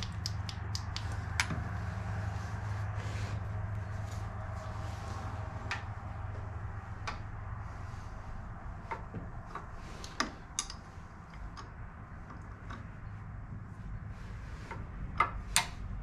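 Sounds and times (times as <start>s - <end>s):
steady low hum: 0.0s - 16.0s
metallic clicks of hand tools: 8.9s - 11.7s.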